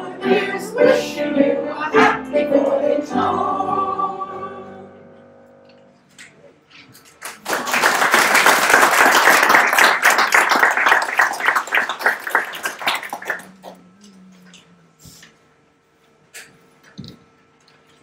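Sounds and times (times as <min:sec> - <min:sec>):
audience applauding: 0:07.0 - 0:13.8.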